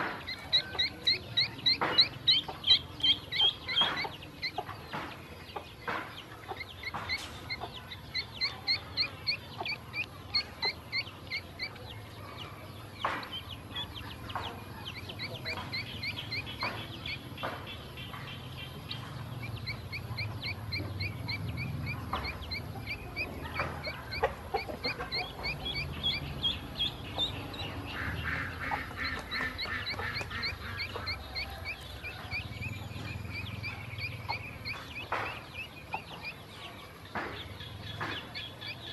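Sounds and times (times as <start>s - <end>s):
ducklings peeping: 0.0s - 38.9s.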